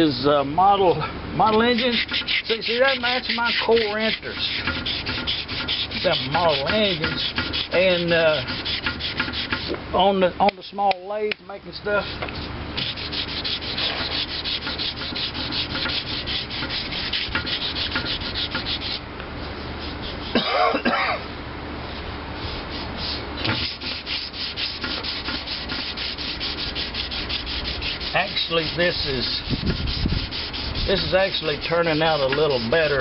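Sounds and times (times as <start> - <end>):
sandpaper rubbing on metal: 1.5 - 9.8, 11.9 - 20.4, 22.4 - 33.0
person coughing: 20.3 - 21.2.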